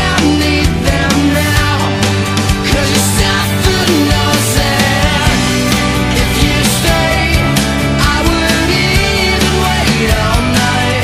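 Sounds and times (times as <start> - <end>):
background music with drum beat: 0.0 - 11.0.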